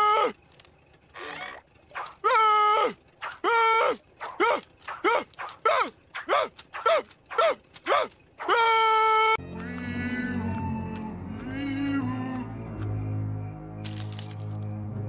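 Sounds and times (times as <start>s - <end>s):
cartoon character screaming: 2.2s - 6.4s, 8.0s - 9.4s.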